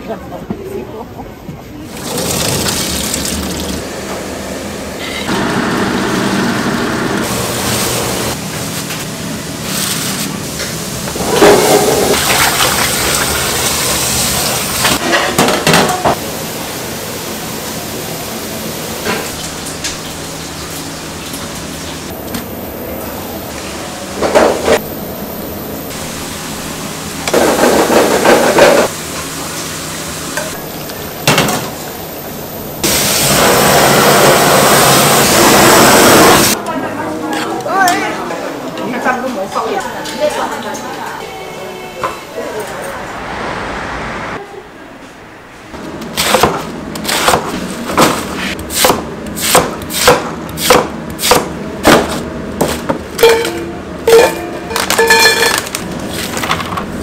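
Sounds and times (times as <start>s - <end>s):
blowtorch hissing: 32.8s - 36.6s.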